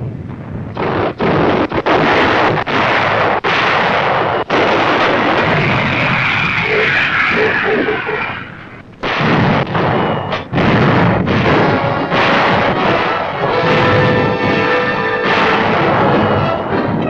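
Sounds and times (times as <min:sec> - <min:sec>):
continuous rumble: 0:00.0 - 0:17.0
shell explosions: 0:00.0 - 0:17.0
artillery guns firing: 0:00.4 - 0:17.0
music: 0:11.4 - 0:17.0.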